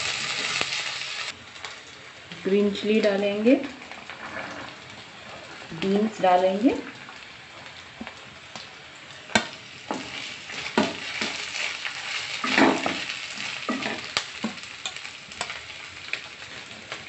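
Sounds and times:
vegetables sizzling in oil: 0:00.0 - 0:17.0
spatula knocking and scraping pan: 0:09.4 - 0:11.4, 0:13.7 - 0:14.6.

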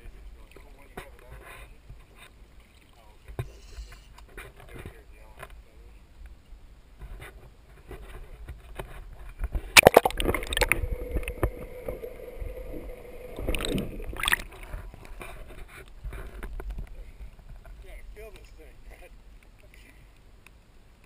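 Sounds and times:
water splashing and gurgling: 0:09.8 - 0:15.2
muffled underwater hum: 0:10.0 - 0:14.9.

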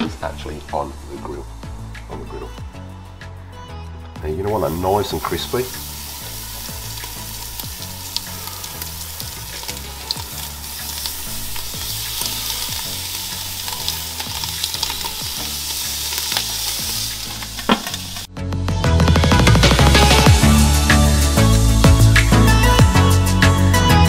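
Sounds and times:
bacon sizzling on grill: 0:04.4 - 0:18.3, 0:19.8 - 0:23.1.

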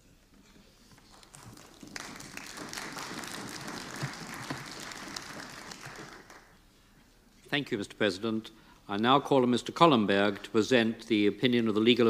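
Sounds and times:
crowd applauding: 0:01.0 - 0:06.6.

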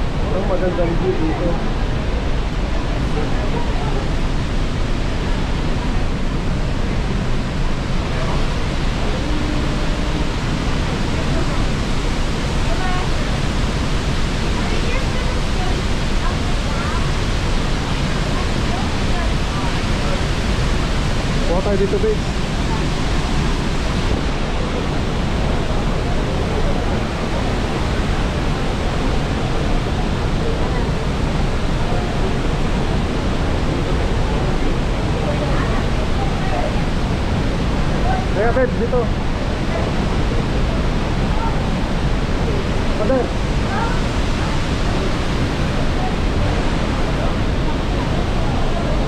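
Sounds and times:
roar of falling water: 0:00.0 - 0:49.0.

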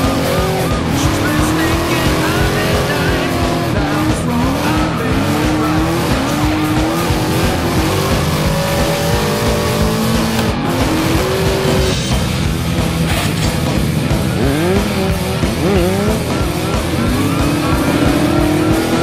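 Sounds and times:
background music: 0:00.0 - 0:19.0
car engine revving hard: 0:00.0 - 0:19.0.

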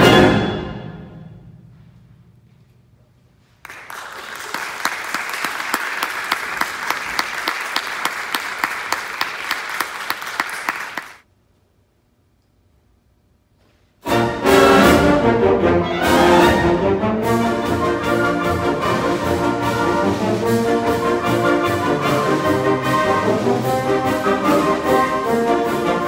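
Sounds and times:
audience applause: 0:03.6 - 0:11.2.

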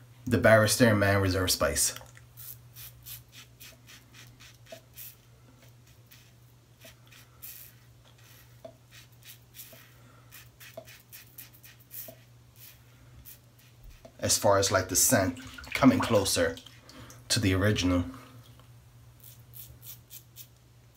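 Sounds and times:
razor scraping stubble: 0:02.4 - 0:14.2, 0:19.2 - 0:20.6.

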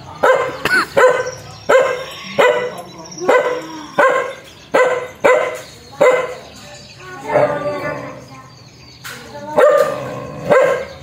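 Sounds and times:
dog barking fiercely: 0:00.2 - 0:06.5, 0:09.6 - 0:11.0.

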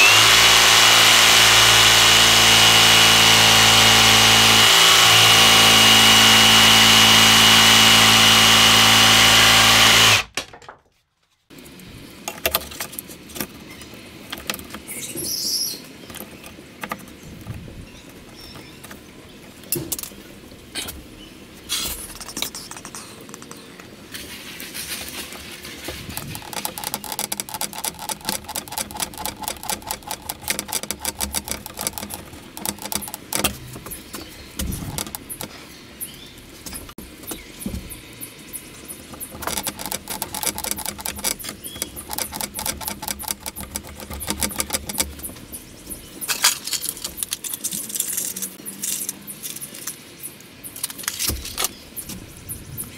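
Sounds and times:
screwdriver ratchet clicks: 0:26.2 - 0:33.5, 0:39.4 - 0:45.1.

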